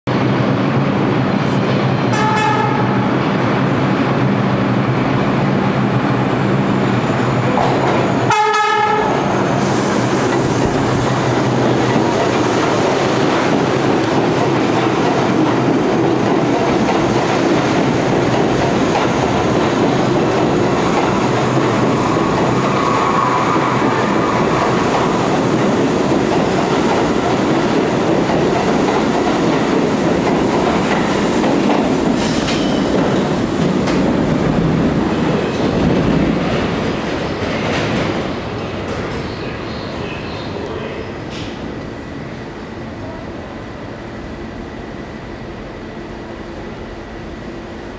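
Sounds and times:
subway train rumbling past: 0.1 - 47.9
train horn: 2.1 - 3.1, 8.3 - 9.3.

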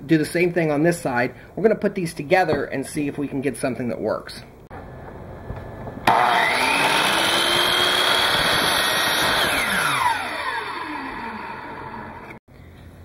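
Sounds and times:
chop saw motor whine: 4.8 - 12.4.

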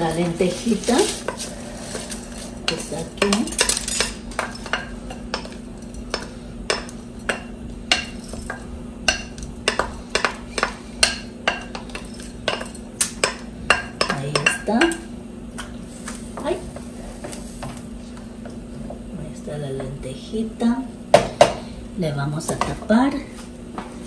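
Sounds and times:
wooden spoon scraping a bowl: 0.0 - 3.4.

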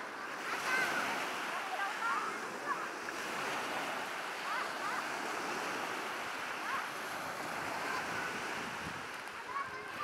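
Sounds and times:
waves washing on a beach: 0.0 - 10.0
faint voices of people: 6.6 - 10.0.

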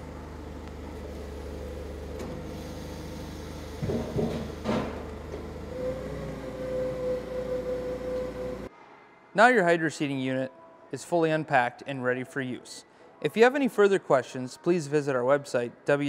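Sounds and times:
forklift engine running: 0.0 - 8.7.

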